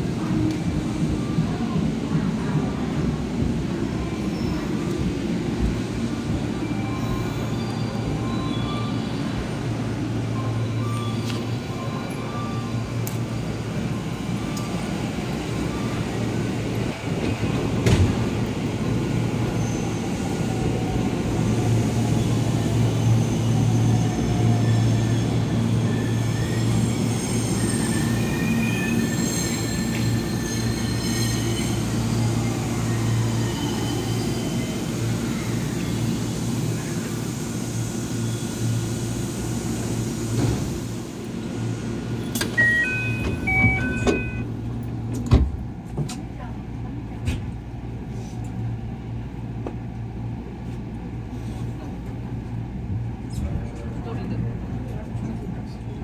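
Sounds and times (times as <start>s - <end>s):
high wheel squeal: 23.0s - 36.3s.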